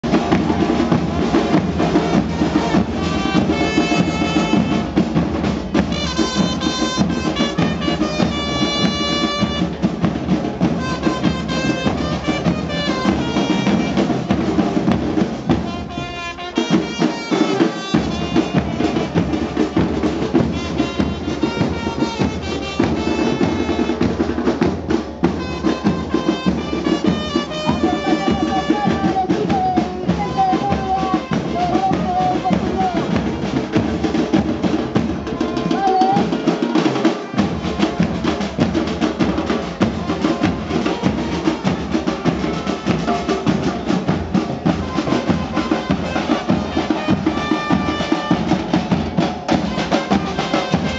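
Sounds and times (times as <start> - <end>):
bass drums beating: 0.0 - 16.2, 37.3 - 50.9
trumpet melody: 0.0 - 50.9.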